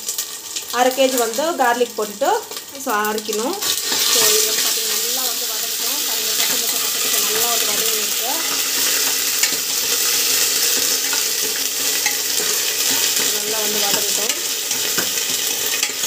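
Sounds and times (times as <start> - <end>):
hot oil sizzling and spluttering: 0.0 - 16.0
spoon stirring mixture: 6.4 - 16.0.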